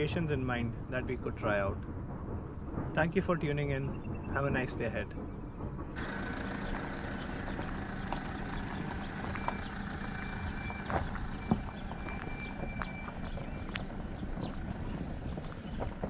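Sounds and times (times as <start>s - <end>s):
tyres knocking on loose stones: 3.6s - 16.0s
diesel engine running: 5.9s - 16.0s.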